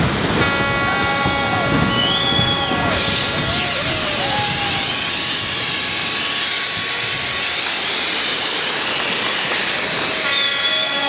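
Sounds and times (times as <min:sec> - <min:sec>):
rushing water: 0:00.0 - 0:11.0
wave washing along bank: 0:00.0 - 0:11.0
horn tones: 0:00.4 - 0:07.4.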